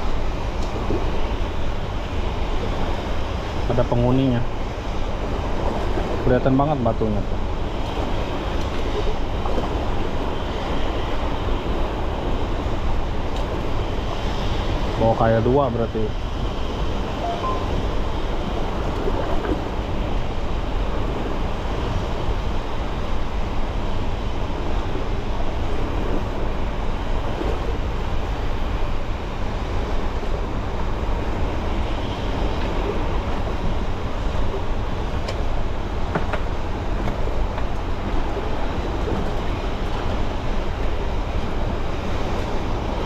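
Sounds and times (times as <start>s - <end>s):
rushing water: 0.0s - 43.0s.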